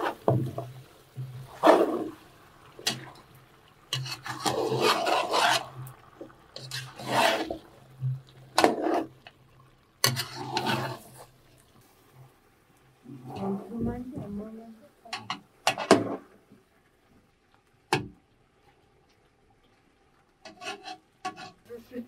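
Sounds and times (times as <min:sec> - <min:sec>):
rough rasping strokes: 0:03.9 - 0:05.9, 0:06.6 - 0:07.6, 0:20.5 - 0:21.7.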